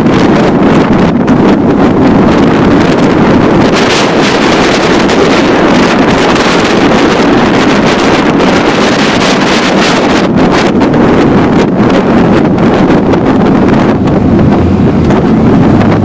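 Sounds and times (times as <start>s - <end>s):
motorcycle engine and road noise: 0.0s - 16.0s
wind rushing over microphone: 0.0s - 16.0s.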